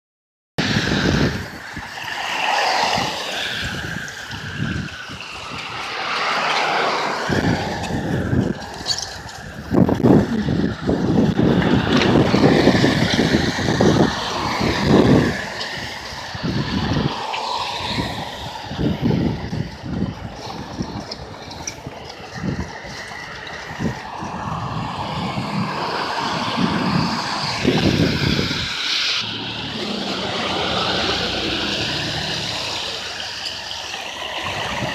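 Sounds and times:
car engines passing: 0:00.6 - 0:34.9
tyres on wet pavement: 0:00.6 - 0:34.9.

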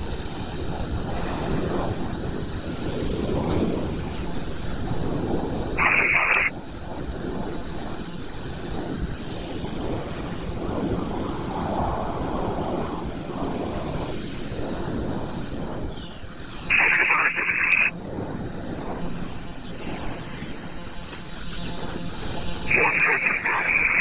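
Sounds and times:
wind buffeting microphone: 0:00.0 - 0:24.0
radio static burst: 0:05.8 - 0:06.5, 0:16.7 - 0:17.9, 0:22.6 - 0:24.0.

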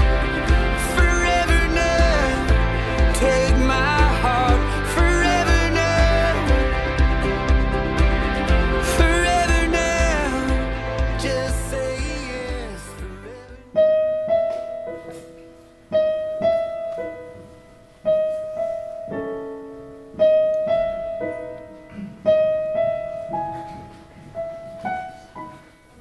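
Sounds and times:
person singing: 0:00.0 - 0:14.1
slow piano playing: 0:00.0 - 0:26.0.

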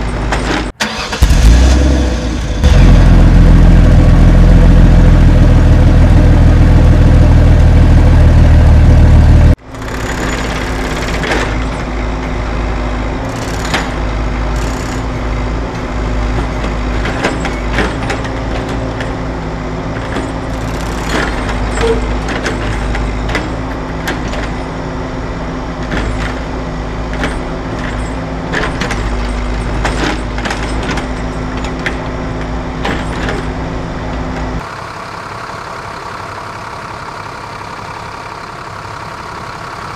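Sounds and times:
heavy engine running: 0:00.0 - 0:39.9.

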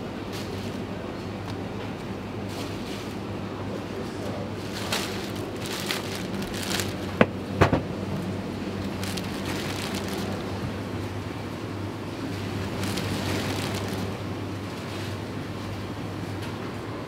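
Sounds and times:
steady low hum: 0:00.0 - 0:17.0
plastic bag crinkling: 0:04.6 - 0:07.3, 0:08.8 - 0:10.7, 0:12.4 - 0:14.3.

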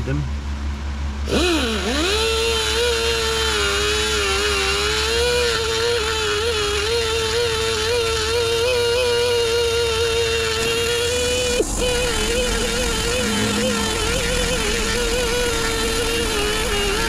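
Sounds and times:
die grinder whining into metal: 0:01.3 - 0:17.0.

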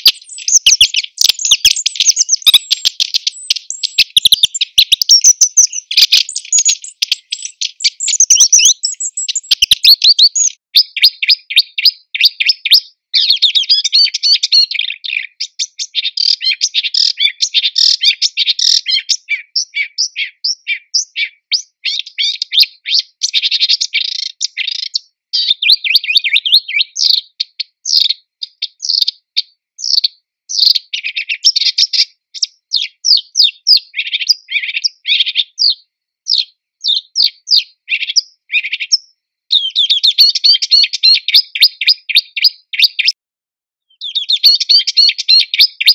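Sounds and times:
warbler singing: 0:00.0 - 0:29.1, 0:29.8 - 0:43.2, 0:43.9 - 0:45.9.

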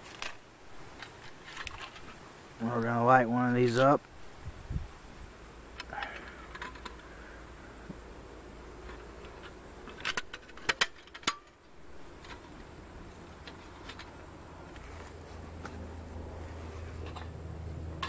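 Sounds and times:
metal hinged sides clacking open: 0:08.8 - 0:11.6.

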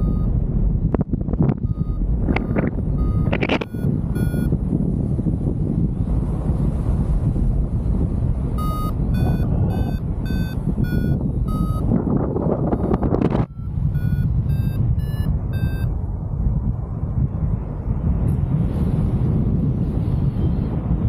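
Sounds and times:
variometer climb beeps: 0:00.0 - 0:00.4, 0:01.3 - 0:04.6, 0:08.6 - 0:16.0
wind rush on microphone: 0:00.0 - 0:21.0.

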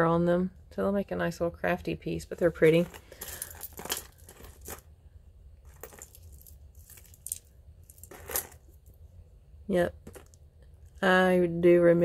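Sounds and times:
jewelry clinking: 0:02.3 - 0:05.0, 0:05.6 - 0:09.0, 0:09.9 - 0:11.0.

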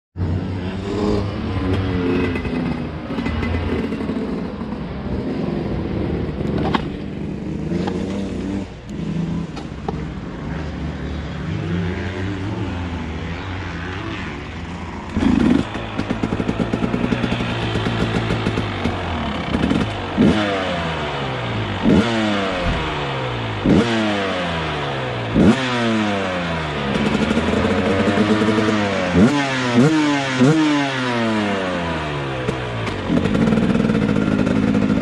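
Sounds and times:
motocross bike engine revving: 0:00.2 - 0:35.0.

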